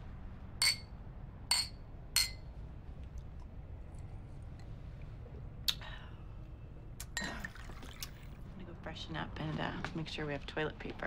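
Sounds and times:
drinking glasses clinking: 0:00.6 - 0:00.9, 0:01.5 - 0:02.4.

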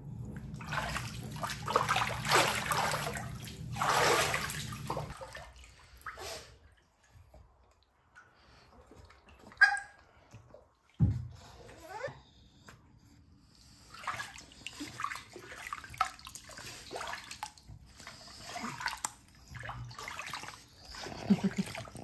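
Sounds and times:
steady low hum: 0:00.0 - 0:05.8
water sloshing and splashing: 0:00.0 - 0:11.6, 0:13.7 - 0:22.0.

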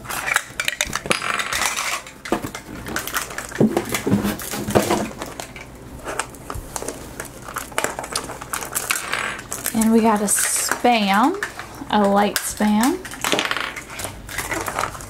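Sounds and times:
small plastic pieces clicking: 0:06.8 - 0:15.0.

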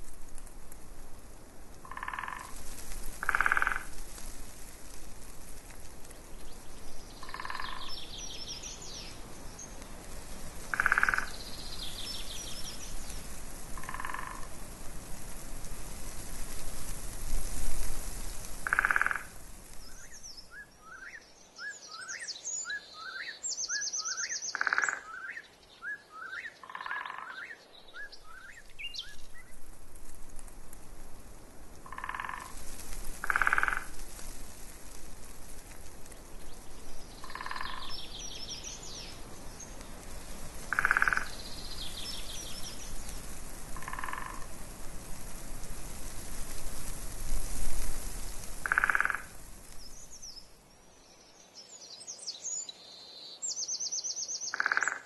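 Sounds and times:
wind rumble on microphone: 0:00.0 - 0:20.6, 0:27.9 - 0:50.5
frogs croaking: 0:01.8 - 0:04.0, 0:07.2 - 0:08.3, 0:10.6 - 0:12.8, 0:13.8 - 0:14.6, 0:18.6 - 0:21.2, 0:24.2 - 0:25.4, 0:26.2 - 0:27.6, 0:31.8 - 0:32.6, 0:33.2 - 0:34.0, 0:37.2 - 0:38.6, 0:40.6 - 0:42.5, 0:43.8 - 0:44.6, 0:48.6 - 0:49.4, 0:54.4 - 0:55.0
songbird chirping and trilling: 0:06.4 - 0:09.8, 0:10.7 - 0:13.2, 0:19.8 - 0:29.5, 0:36.4 - 0:39.9, 0:40.8 - 0:43.0, 0:49.8 - 0:55.0.

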